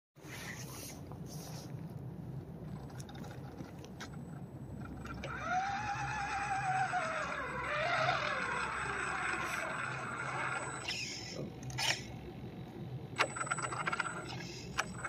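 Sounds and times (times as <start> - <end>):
toy truck motor whining: 5.0 - 12.2, 13.2 - 15.0.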